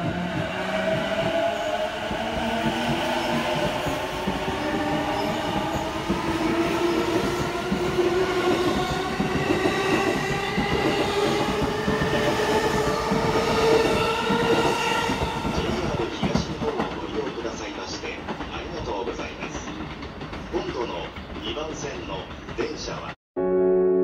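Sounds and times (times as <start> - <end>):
wheels clacking over rails: 2.5 - 23.1.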